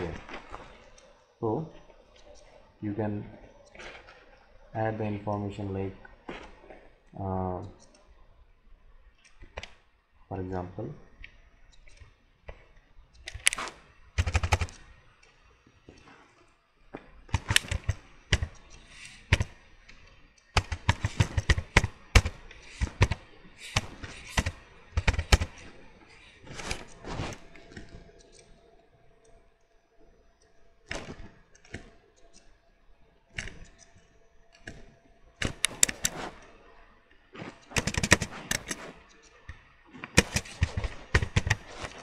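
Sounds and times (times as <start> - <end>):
computer keyboard typing: 13.2 - 14.8, 17.3 - 19.5, 20.6 - 25.7, 35.4 - 36.3, 37.7 - 38.9, 40.2 - 42.0.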